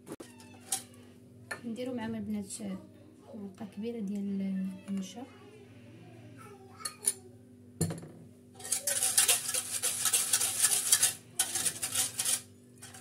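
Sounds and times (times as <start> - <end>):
whisk rattling in metal saucepan: 8.6 - 13.0.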